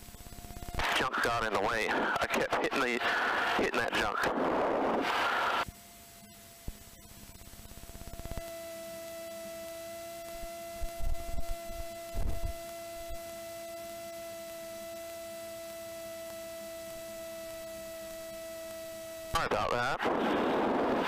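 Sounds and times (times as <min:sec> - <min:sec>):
steady electronic tone: 0:08.1 - 0:19.4.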